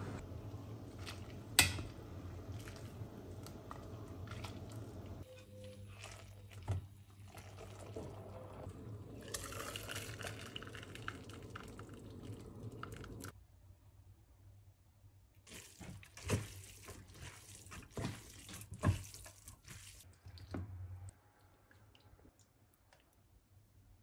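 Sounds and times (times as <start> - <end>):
boiling water bubbling: 0.3 - 13.4.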